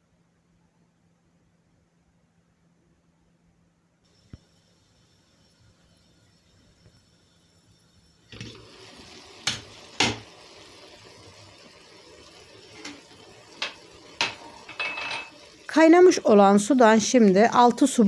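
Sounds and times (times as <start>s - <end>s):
food hissing in a pot: 4.1s - 17.2s.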